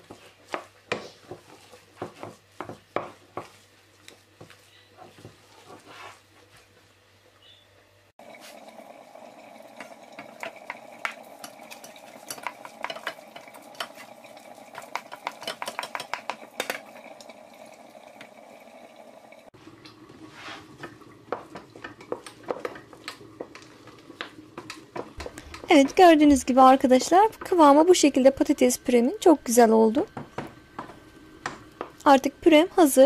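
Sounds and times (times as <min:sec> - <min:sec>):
spoon knocking and scraping pot: 0:00.0 - 0:06.2, 0:09.8 - 0:16.9, 0:20.7 - 0:27.8, 0:30.1 - 0:32.0
wooden spoon stirring mashed potato: 0:00.0 - 0:07.0, 0:09.8 - 0:16.4, 0:20.1 - 0:28.2.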